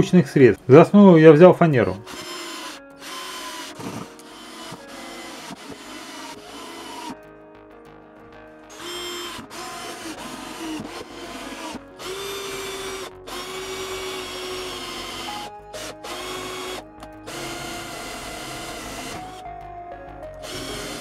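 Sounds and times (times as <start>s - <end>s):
electric drill motor whine: 2.0s - 7.2s, 8.7s - 19.4s, 20.4s - 21.0s.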